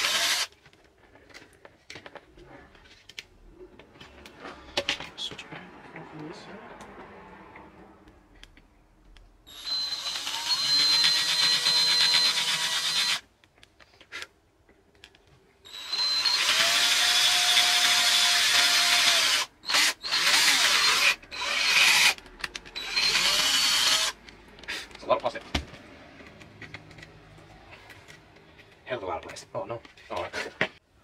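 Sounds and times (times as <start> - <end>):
cordless drill boring plastic: 0.0 - 0.5, 9.5 - 13.2, 15.7 - 22.2, 22.8 - 24.2.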